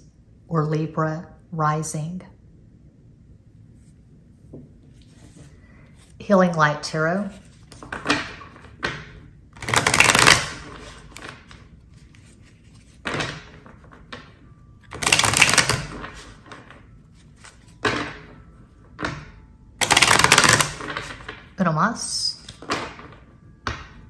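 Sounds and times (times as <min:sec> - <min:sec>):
cards being shuffled: 0:07.2 - 0:08.9, 0:09.6 - 0:17.9, 0:19.8 - 0:21.4, 0:22.4 - 0:23.2.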